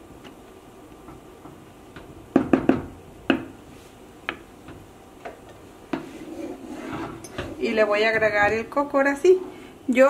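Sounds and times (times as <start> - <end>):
wooden spoon knocking on pot: 1.0 - 3.6.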